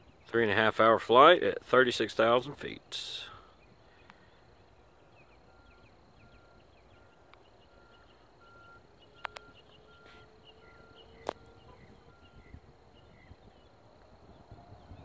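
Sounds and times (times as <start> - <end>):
insects chirping: 0.0 - 15.0
sharp clicks: 9.2 - 9.8, 11.2 - 11.5.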